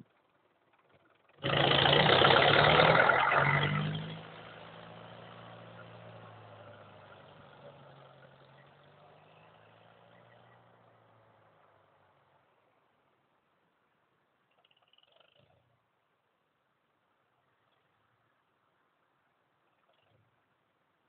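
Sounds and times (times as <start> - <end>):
engine running: 0.0 - 11.2.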